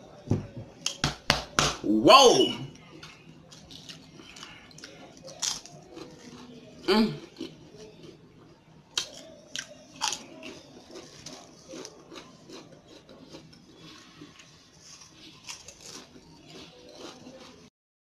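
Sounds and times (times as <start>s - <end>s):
chewing potato chips crunching: 3.0s - 8.2s, 8.9s - 17.7s.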